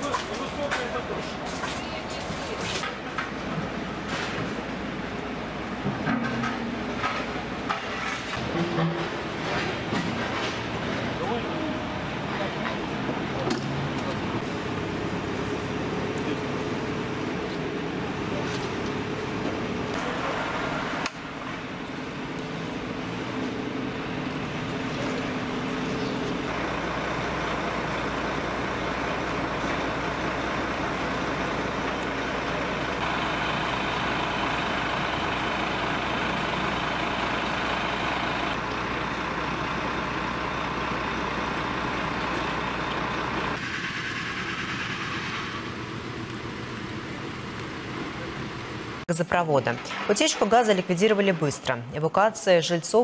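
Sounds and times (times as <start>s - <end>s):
diesel engine idling: 8.4s - 49.1s.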